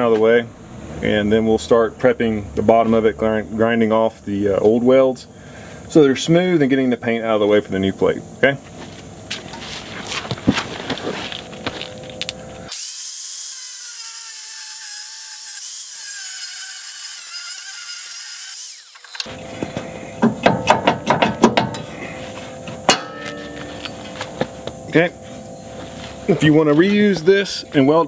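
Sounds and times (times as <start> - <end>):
angle grinder cutting steel: 12.7 - 19.3
metallic knocks and clanks: 19.6 - 21.9, 22.9 - 24.0.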